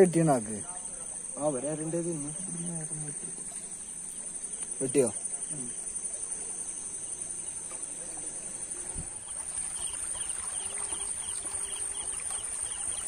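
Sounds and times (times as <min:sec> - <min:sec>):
high cricket trill: 0:00.0 - 0:13.0
insect rhythmic chirping: 0:00.0 - 0:13.0.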